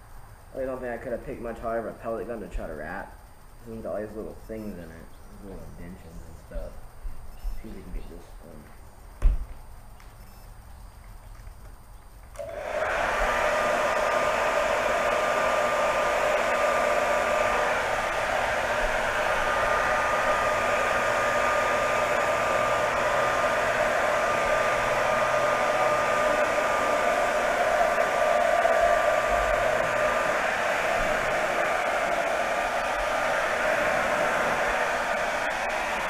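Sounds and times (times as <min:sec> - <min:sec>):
hair dryer blowing with whine: 0:12.4 - 0:36.0.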